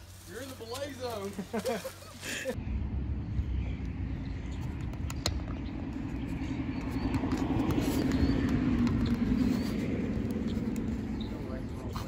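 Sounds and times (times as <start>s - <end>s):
vehicle rumbling over bridge: 2.5s - 12.0s.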